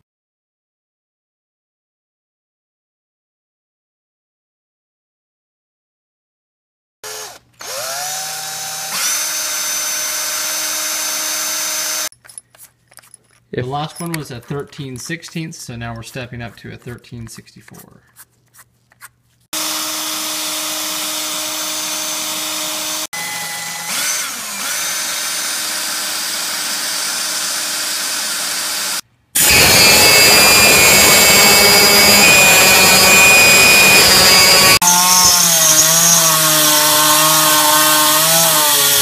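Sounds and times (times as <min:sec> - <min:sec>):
power drill drilling into steel: 0:07.0 - 0:12.1, 0:19.6 - 0:39.0.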